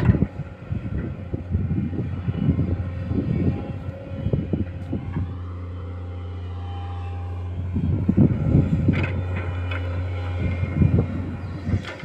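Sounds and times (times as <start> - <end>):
diesel engines droning: 0.0 - 12.0
wind buffeting microphone: 0.0 - 12.0.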